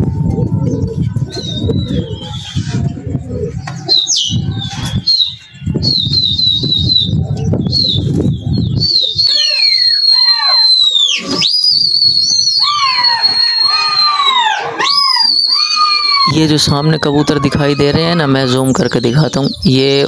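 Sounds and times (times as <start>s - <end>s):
wind rushing: 0.0s - 9.5s
shrill human whistling: 8.8s - 16.3s.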